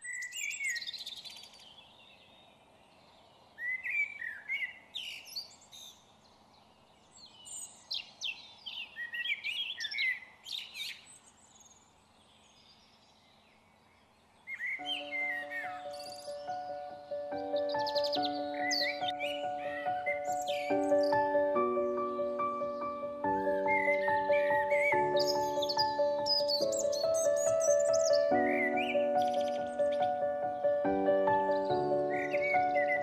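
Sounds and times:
faint background noise: 0.0 - 33.0
songbirds chirping and trilling: 0.0 - 33.0.

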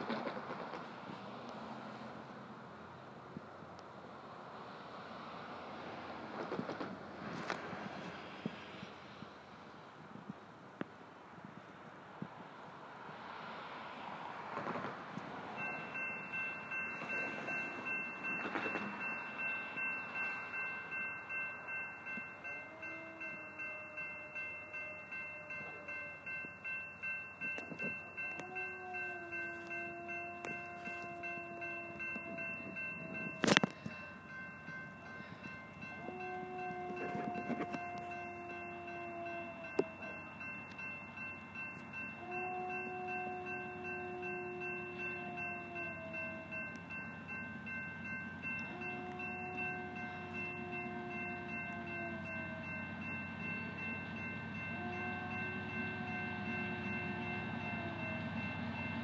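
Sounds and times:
crossing bell ringing: 15.1 - 59.0
distant locomotive horn blasts: 22.4 - 26.6, 27.4 - 34.2, 35.2 - 40.9, 42.0 - 46.9, 48.4 - 53.0, 53.8 - 59.0.

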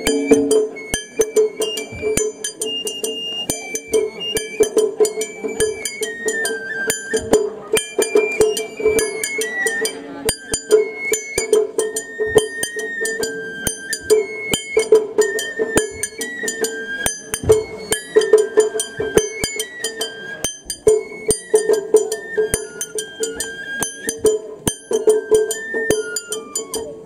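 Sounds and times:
small hand gong strikes: 0.0 - 0.8
drums: 0.0 - 27.0
high flute melody: 0.0 - 27.0.

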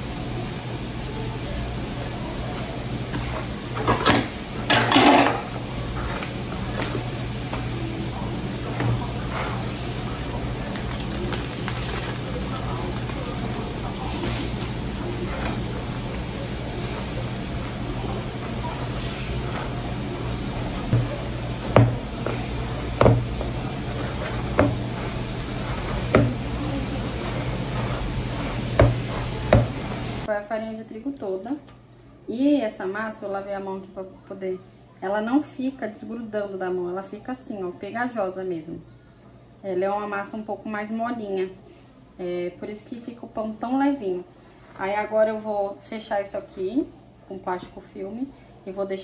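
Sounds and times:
dough being mixed in a bowl: 1.3 - 30.3
kitchen clattering and scraping: 3.1 - 7.6, 8.6 - 30.3
steady low hum: 12.2 - 30.3.

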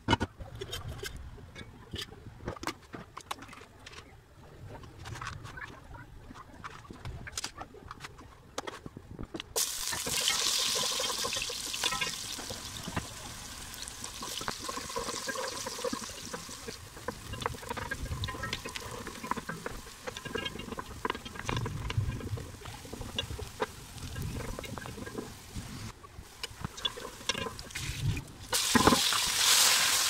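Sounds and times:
onions sizzling in oil: 9.6 - 30.0.

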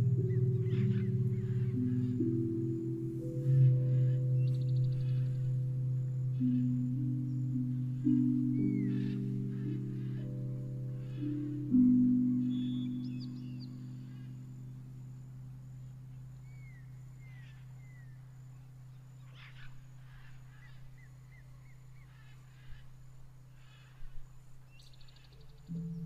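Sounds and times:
low steady tone: 0.0 - 19.3, 24.8 - 26.0
birds calling: 0.0 - 26.0.

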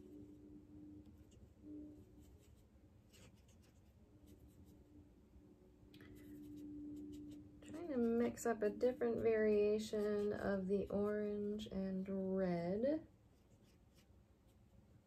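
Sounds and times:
low steady hum: 0.0 - 15.0
paintbrush scratching and tapping: 1.0 - 4.8, 6.0 - 11.7, 13.4 - 14.7.

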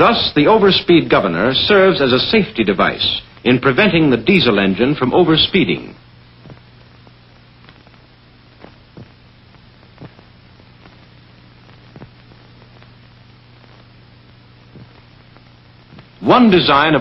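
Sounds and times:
film soundtrack hiss: 0.0 - 17.0
faint clicks and pops: 6.4 - 16.2.

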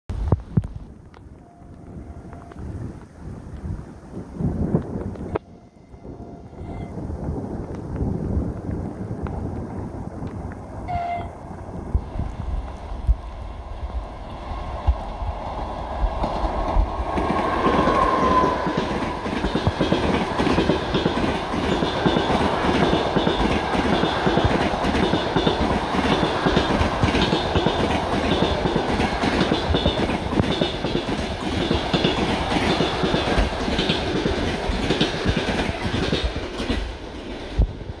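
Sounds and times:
train wheels rushing on rail: 1.3 - 38.0
clickety-clack over rail joints: 14.2 - 38.0.

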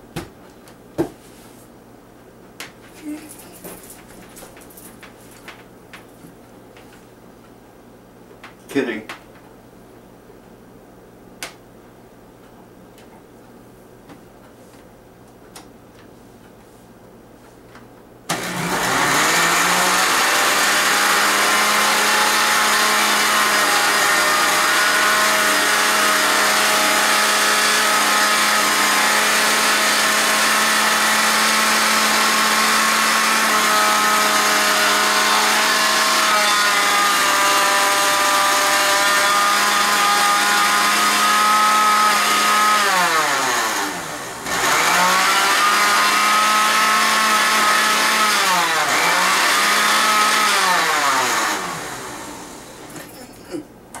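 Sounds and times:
blender motor running: 18.3 - 53.1.

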